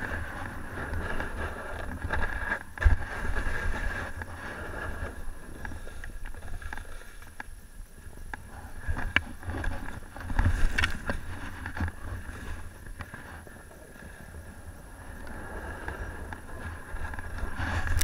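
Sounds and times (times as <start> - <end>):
scraping through deep snow: 0.0 - 5.6
wind rumbling on microphone: 0.0 - 18.0.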